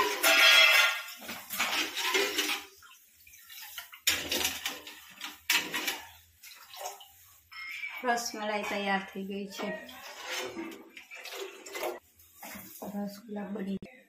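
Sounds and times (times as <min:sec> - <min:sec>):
steel ladle scraping pot: 0:00.0 - 0:02.7, 0:09.5 - 0:12.0
water sloshing in pot: 0:00.0 - 0:13.2.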